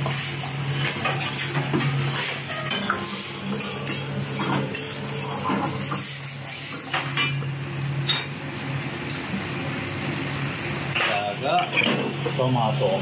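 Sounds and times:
ladle scraping a wok: 0:00.0 - 0:07.4.

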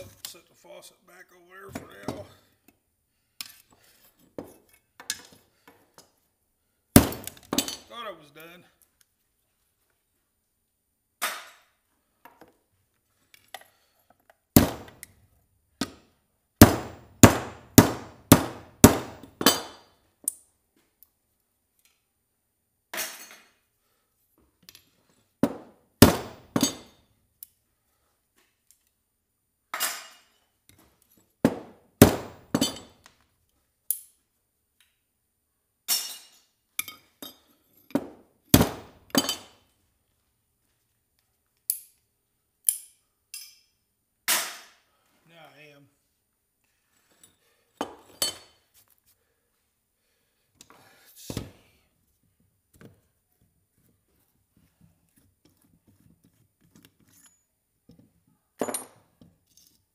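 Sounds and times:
hammer striking scrap metal: 0:16.6 - 0:19.8.

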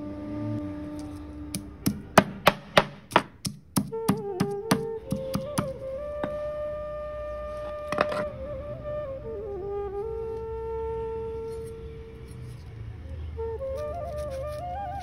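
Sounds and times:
stone pestle pounding in mortar: 0:01.6 - 0:05.7.

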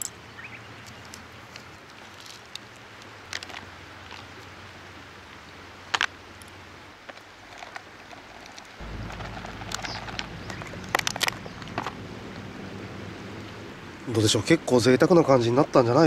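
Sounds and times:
low rumble: 0:08.8 - 0:14.2.

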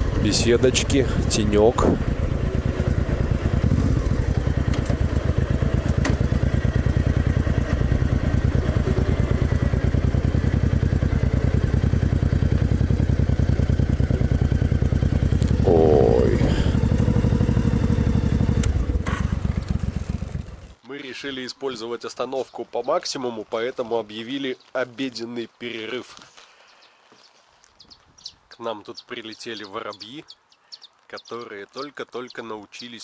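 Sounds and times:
motorcycle engine running: 0:00.0 - 0:20.8.

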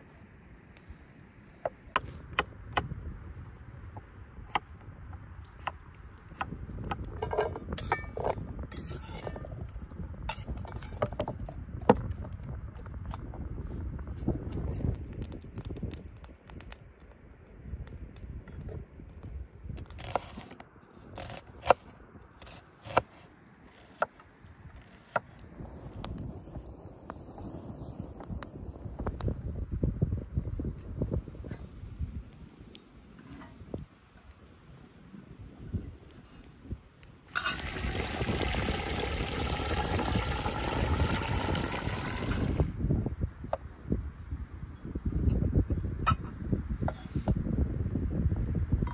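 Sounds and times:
water pouring and splashing: 0:37.3 - 0:42.8.

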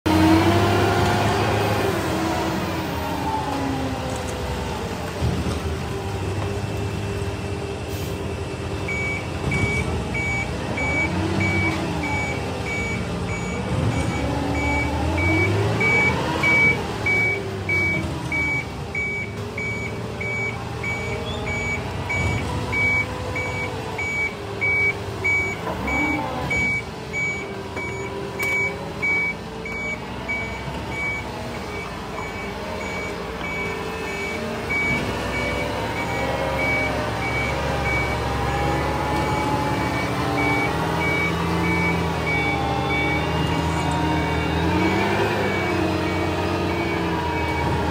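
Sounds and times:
truck engine revving: 0:00.0 - 0:47.9
backup alarm beeping: 0:08.4 - 0:47.9.

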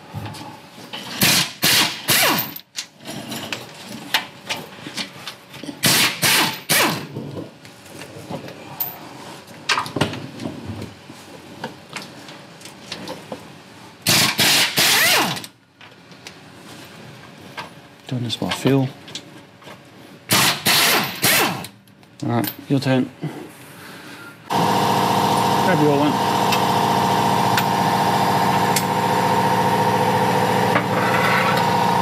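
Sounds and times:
pneumatic ratchet bursts: 0:01.2 - 0:02.5, 0:05.8 - 0:07.0, 0:14.0 - 0:15.4, 0:20.3 - 0:21.7.

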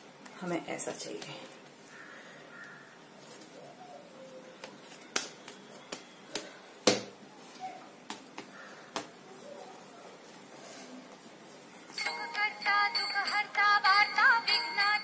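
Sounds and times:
hands slapping bread dough: 0:04.6 - 0:07.2, 0:07.9 - 0:09.2.

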